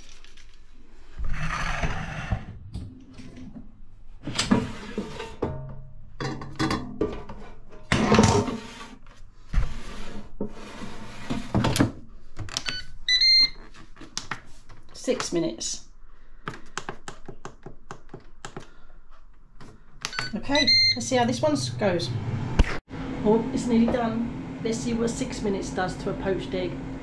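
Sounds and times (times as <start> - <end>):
metal bowl clattering and scraping: 4.8 - 9.0
air fryer electronic beeps: 12.7 - 13.6, 20.1 - 21.1.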